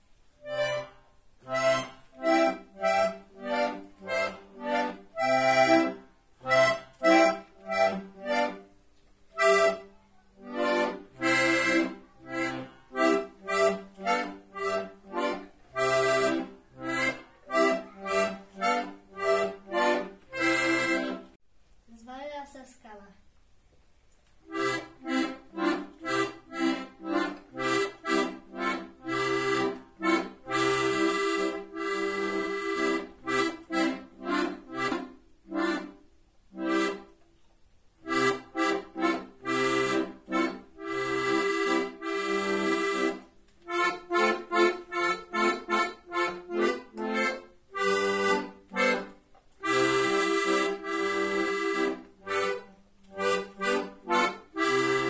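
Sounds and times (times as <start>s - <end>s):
accordion playing chords: 0.0s - 21.4s, 24.4s - 37.2s, 38.0s - 55.0s.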